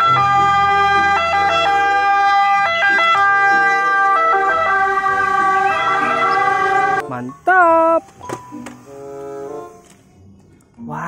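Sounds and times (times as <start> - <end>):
two-tone ambulance siren: 0.0 - 7.3.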